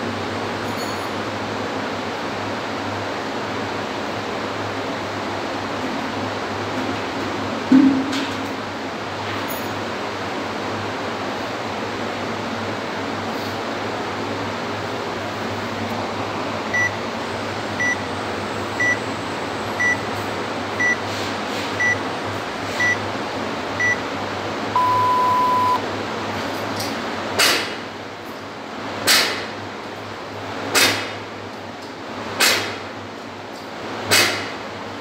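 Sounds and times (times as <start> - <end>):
short high beeps: 16.8 - 17.0, 24.8 - 25.8
longer lower start tone: 24.8 - 25.8.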